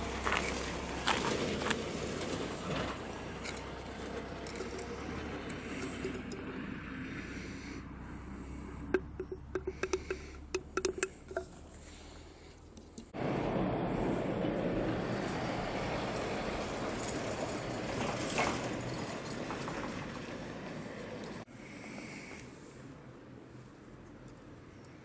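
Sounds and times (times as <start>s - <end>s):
drink can being handled: 4.4s - 6.4s, 8.9s - 11.9s.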